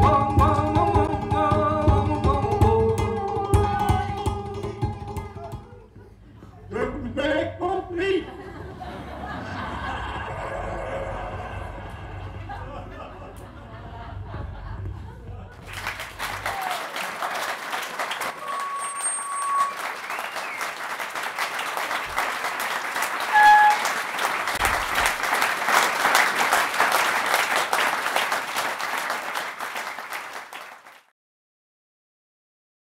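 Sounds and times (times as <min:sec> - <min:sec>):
audience applauding: 0:15.5 - 0:31.1.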